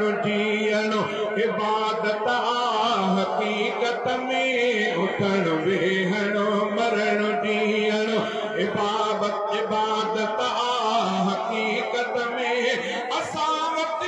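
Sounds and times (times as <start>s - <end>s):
man chanting through microphones: 0.0s - 14.0s.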